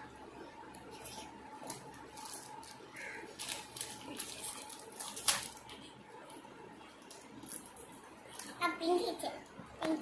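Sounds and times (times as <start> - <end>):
plastic wrapper crinkling: 1.0 - 6.4.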